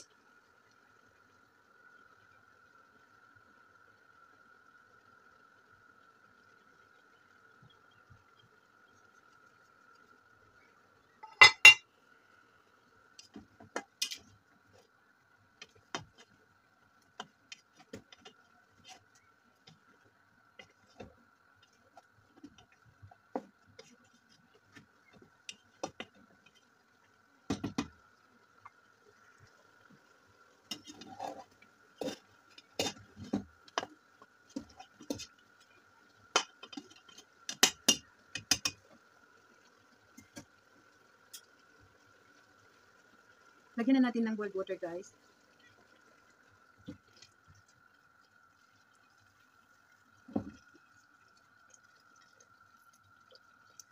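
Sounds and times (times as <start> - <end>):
metal spoon clinking against pot: 11.2 - 11.8.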